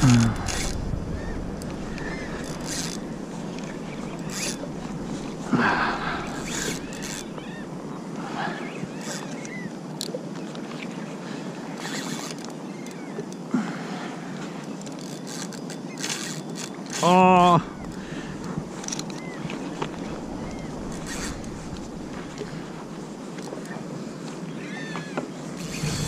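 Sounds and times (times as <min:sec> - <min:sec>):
wind on microphone: 0:00.0 - 0:08.9, 0:17.4 - 0:23.2, 0:25.5 - 0:26.0
water lapping around kayak: 0:00.0 - 0:26.0.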